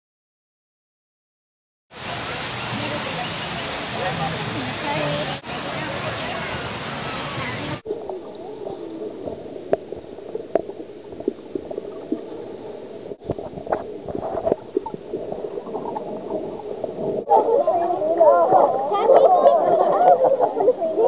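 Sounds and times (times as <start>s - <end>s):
underwater gurgling and bubbling: 7.9s - 18.8s.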